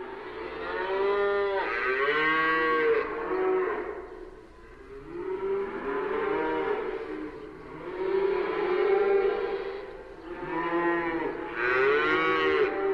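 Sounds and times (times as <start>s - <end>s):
cows mooing: 5.0s - 12.9s.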